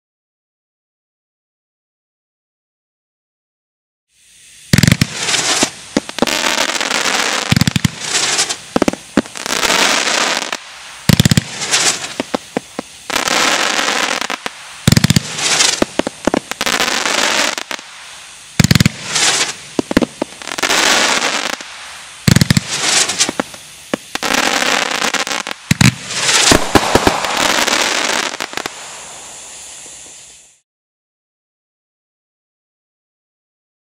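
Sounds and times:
firework crackling bursts: 4.1 - 30.6
firework launch thumps: 4.7 - 6.3, 14.4 - 16.6, 21.6 - 24.3, 25.6 - 30.3.

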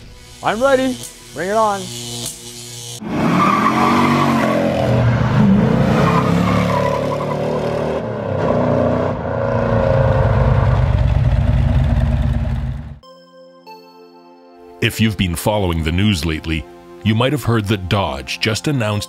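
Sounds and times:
car engine revving: 3.0 - 13.0.

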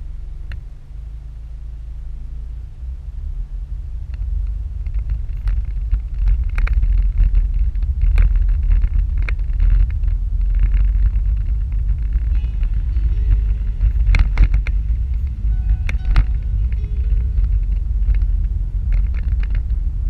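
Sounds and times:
car road and engine rumble: 0.0 - 20.0
clicks and rattles: 4.1 - 20.0.

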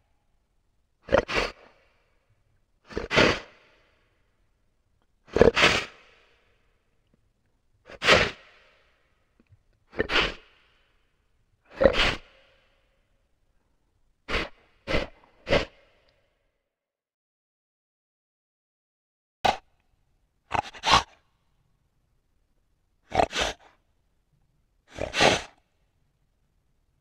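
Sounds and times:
animal snorting through nostrils: 1.1 - 1.9, 2.9 - 3.8, 5.3 - 6.4, 7.9 - 8.8, 9.9 - 10.9, 11.7 - 12.7, 14.3 - 16.2, 20.5 - 21.2, 23.1 - 23.8, 24.9 - 25.6.

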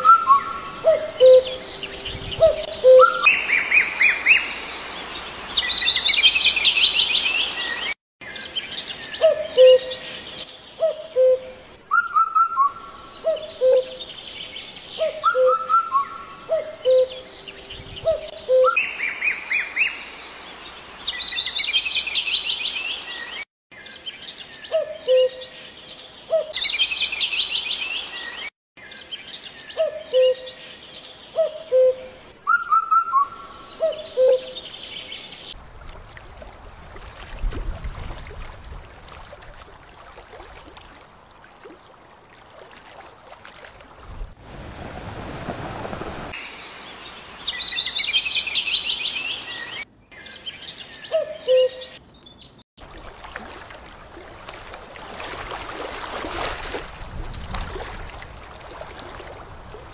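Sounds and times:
bird whistled notes: 2.4 - 3.8, 11.2 - 12.9, 15.2 - 17.2, 18.1 - 18.9, 31.7 - 34.6.

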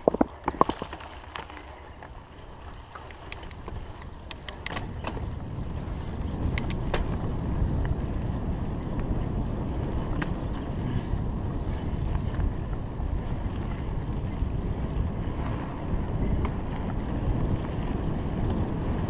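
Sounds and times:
bike clicks and rattles: 0.0 - 19.0
bike rolling on dirt: 0.0 - 19.0
wind rumbling on microphone: 0.0 - 19.0.

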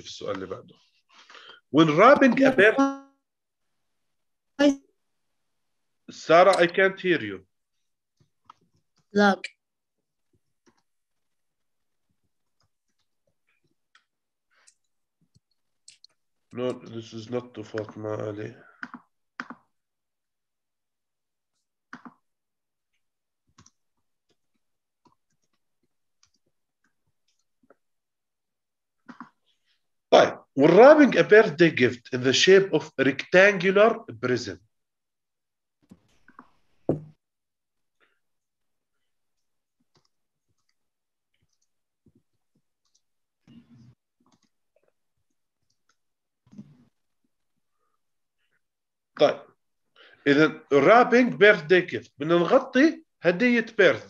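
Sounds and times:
faint irregular clicks: 7.7 - 17.0, 18.7 - 19.9, 21.5 - 28.1, 29.0 - 29.8, 37.8 - 49.3.

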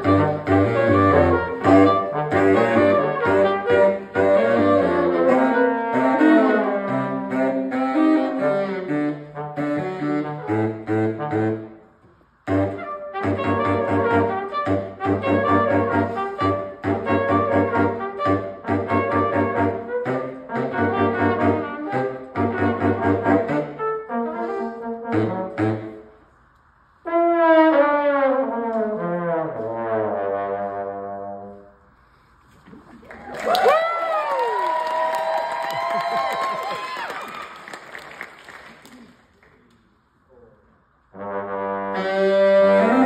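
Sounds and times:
brass trio playing chords: 0.0 - 26.3, 41.1 - 43.0.

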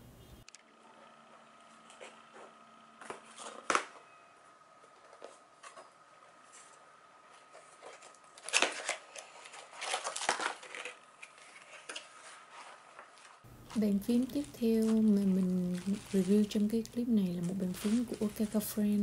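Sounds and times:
cardboard scraping and rustling: 1.6 - 4.0, 4.8 - 19.0.

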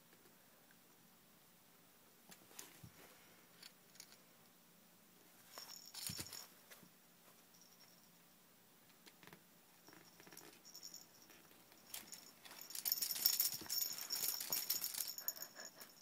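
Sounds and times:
toy jingling: 5.5 - 6.5, 9.8 - 16.0
plastic toy rings rattling: 11.8 - 15.9.

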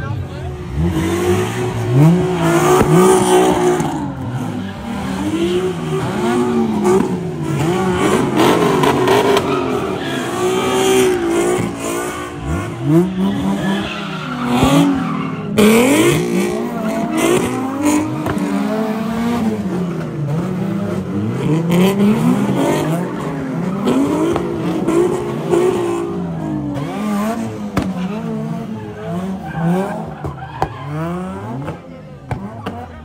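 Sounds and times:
car engine revving: 0.0 - 33.0
tyres squealing and skidding: 0.0 - 33.0.

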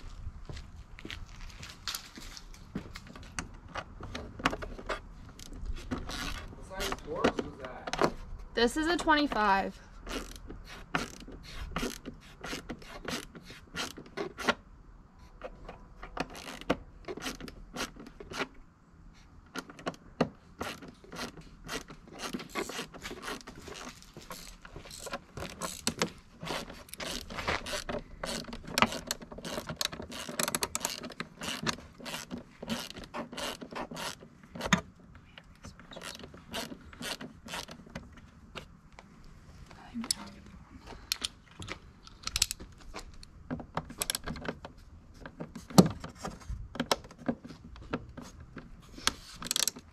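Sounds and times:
hand ratchet clicking: 20.6 - 34.8, 42.1 - 42.6, 49.4 - 49.9.

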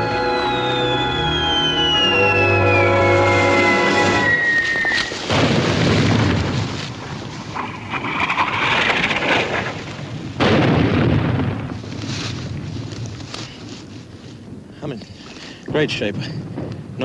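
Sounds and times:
falling whistle: 0.0 - 5.3
artillery shell blasts: 5.2 - 11.9.

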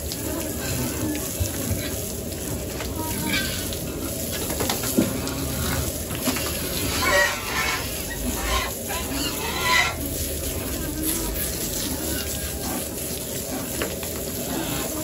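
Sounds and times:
pigs squealing and grunting: 3.1 - 4.2, 5.0 - 13.8, 14.4 - 15.0
hose spray hissing: 3.4 - 15.0.

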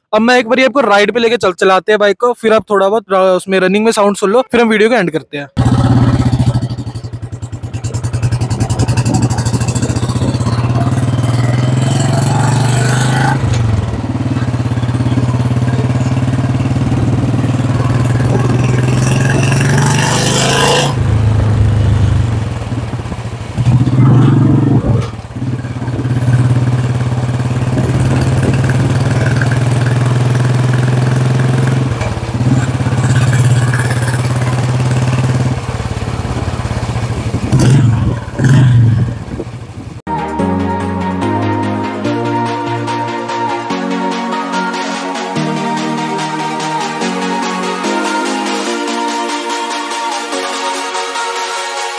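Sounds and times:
motorcycle engine running: 5.6 - 40.1.

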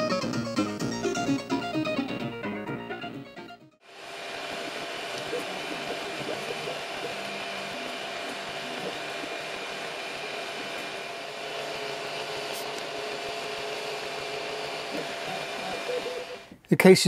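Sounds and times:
stepper motor tones: 3.8 - 16.6
fan whirring: 3.8 - 16.7.

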